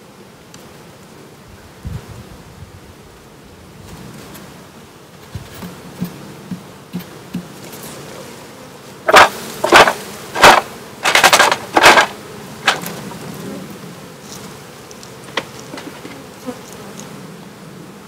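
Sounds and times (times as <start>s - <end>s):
honeybees buzzing: 0.0s - 18.0s
wooden hive box scraping: 3.8s - 17.2s.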